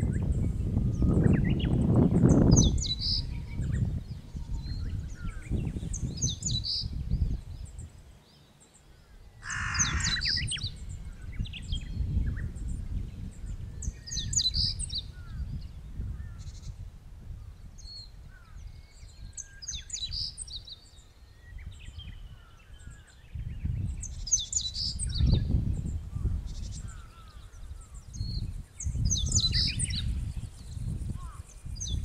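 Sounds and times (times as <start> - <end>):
small birds chirping: 0.0 - 32.0
wind rumbling on microphone: 0.0 - 32.0
harsh bird call: 9.4 - 10.6.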